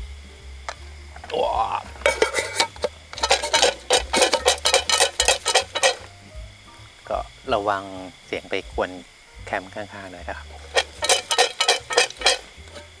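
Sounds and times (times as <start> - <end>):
popcorn popping in metal pot: 1.3 - 6.2, 8.8 - 13.0.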